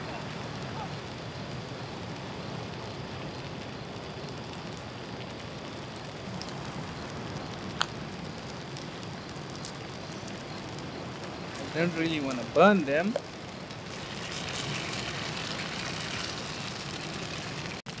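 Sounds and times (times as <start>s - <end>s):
patties sizzling in a frying pan: 5.4s - 18.0s.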